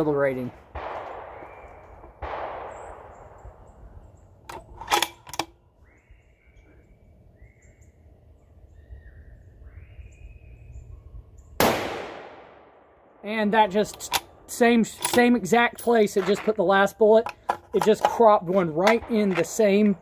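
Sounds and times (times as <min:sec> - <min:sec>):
rifle shot: 0:00.6 - 0:03.7, 0:11.6 - 0:13.2
rifle bolt clicks: 0:04.5 - 0:05.6, 0:13.9 - 0:14.3, 0:14.9 - 0:15.4.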